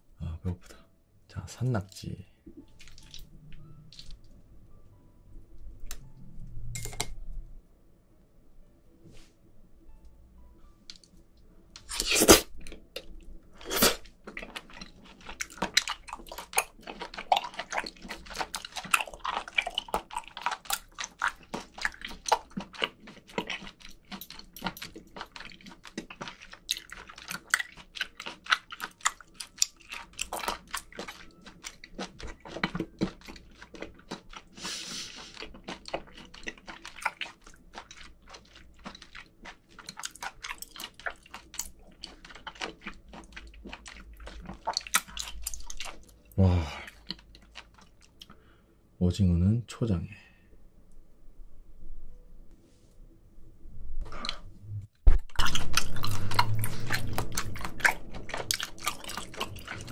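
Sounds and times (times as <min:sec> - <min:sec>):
wet chewing clicks and squelches: 0:01.8 - 0:04.3, 0:11.8 - 0:48.5, 0:55.1 - 0:59.9.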